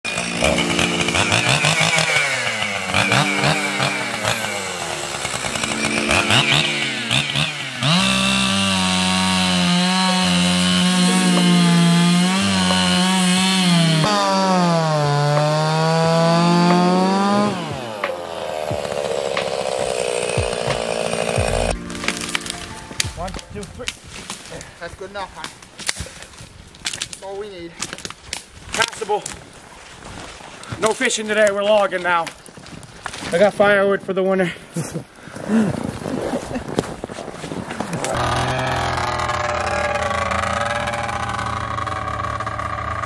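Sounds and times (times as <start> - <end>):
chainsaw cutting wood: 0.0 - 24.4, 38.0 - 43.0.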